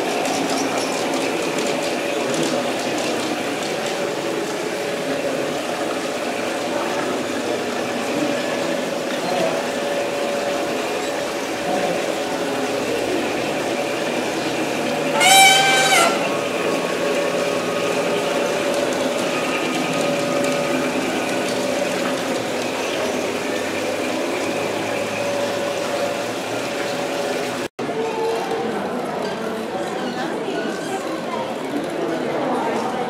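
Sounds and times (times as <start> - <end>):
model train rumbling on track: 0.0 - 33.0
train horn blast: 15.1 - 16.8.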